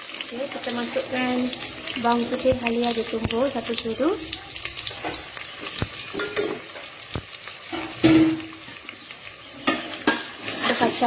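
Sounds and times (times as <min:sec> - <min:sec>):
food sizzling in hot oil: 0:00.0 - 0:11.0
metal spoon tapping a pot: 0:05.0 - 0:06.9.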